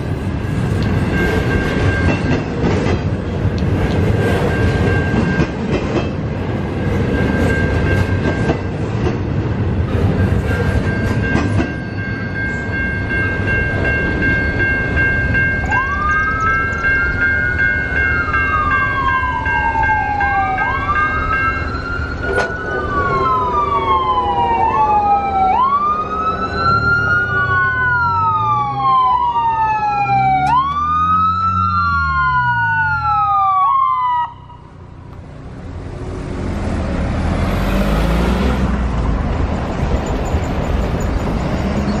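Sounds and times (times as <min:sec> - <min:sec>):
vehicle engine and tyres: 0:00.0 - 0:12.7, 0:21.7 - 0:32.6, 0:34.3 - 0:42.0
ambulance siren wailing: 0:15.6 - 0:35.0.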